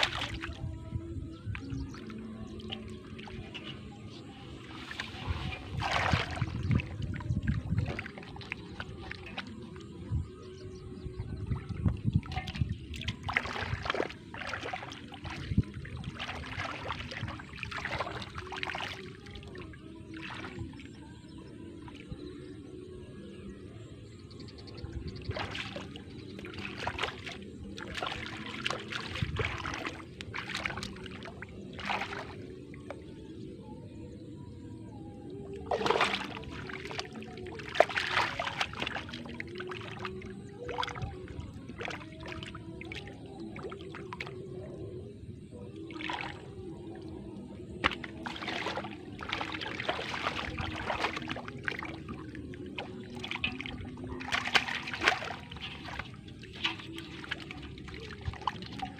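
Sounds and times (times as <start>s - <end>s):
splashing in shallow water: 0.0s - 34.2s, 35.2s - 58.9s.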